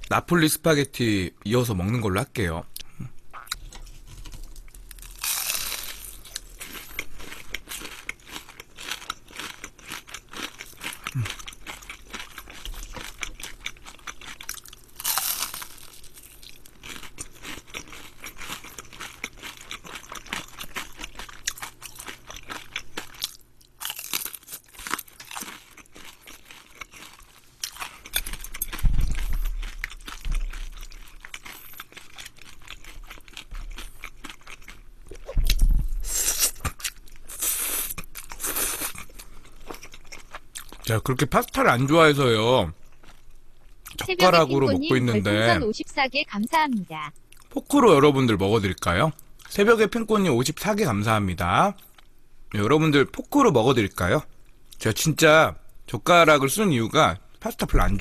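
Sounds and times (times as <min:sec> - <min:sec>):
crunching fried shrimp: 0:03.3 - 0:44.8
dull low thump: 0:28.8 - 0:29.6.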